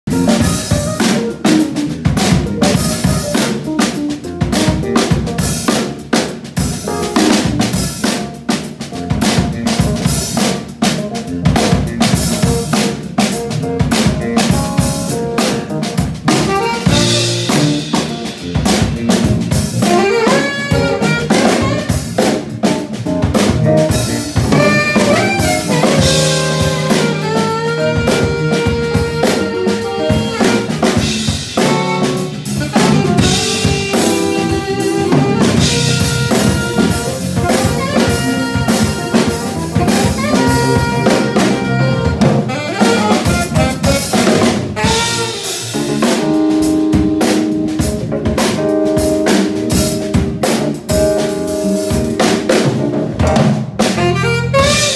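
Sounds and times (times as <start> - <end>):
drum kit: 0.0 - 54.9
electric keyboard: 0.0 - 54.9
live funk band: 0.0 - 54.9
saxophone long tones: 19.8 - 22.0, 24.6 - 44.2, 54.0 - 54.9.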